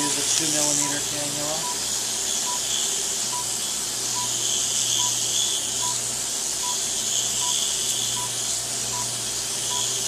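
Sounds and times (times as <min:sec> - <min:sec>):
low machine hum: 0:00.0 - 0:10.0
suction machine hissing: 0:00.0 - 0:10.0
short high monitor beeps: 0:09.7 - 0:10.0.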